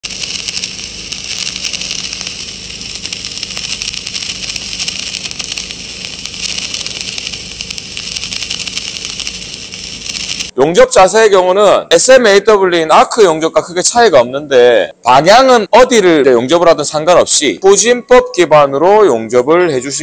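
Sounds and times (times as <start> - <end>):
welding arc crackling: 0.0 - 10.6.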